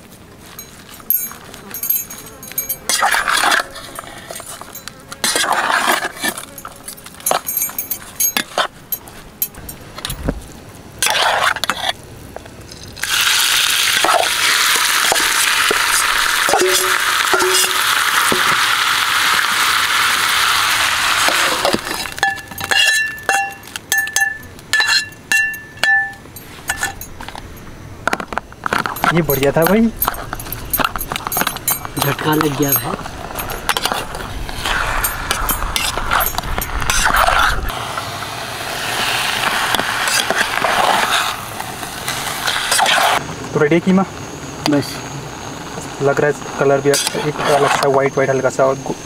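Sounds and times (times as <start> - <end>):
spatula clinking on steel pot: 0.6 - 3.2, 16.5 - 17.9, 22.1 - 27.1
metal spatula scraping a pot: 0.6 - 8.7, 16.4 - 18.6, 21.2 - 27.1
loud sizzling in hot oil: 12.7 - 24.1, 37.7 - 43.2.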